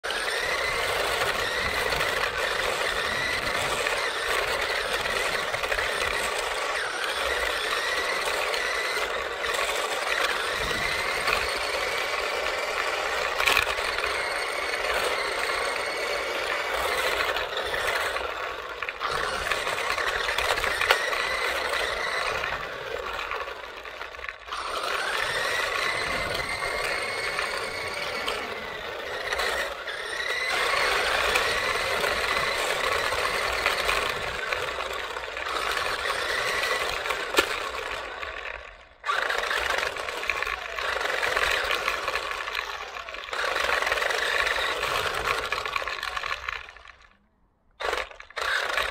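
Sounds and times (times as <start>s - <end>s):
electric motor whining: 0.0s - 47.2s, 47.8s - 48.9s
tyres rattling on rough asphalt: 0.0s - 47.2s
sharp clicks: 47.8s - 48.9s.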